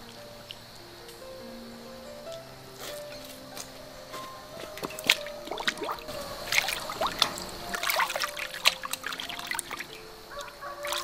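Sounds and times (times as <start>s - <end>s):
water dripping: 0.0s - 1.3s, 2.2s - 11.0s
water splashing in metal basin: 4.6s - 11.0s.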